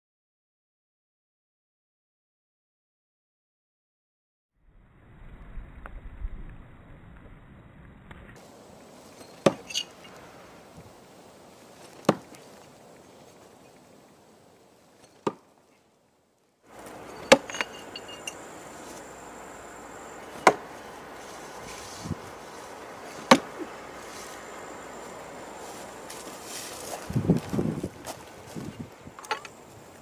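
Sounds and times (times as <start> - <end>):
knives thudding into wood: 9.4 - 9.9, 17.1 - 18.4, 20.3 - 20.7, 23.1 - 23.7
brief metallic ring: 17.1 - 18.4.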